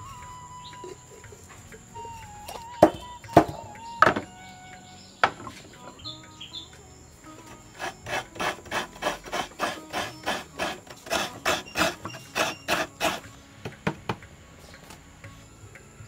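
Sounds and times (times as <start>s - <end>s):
coconut scraper rasping: 7.4s - 13.9s.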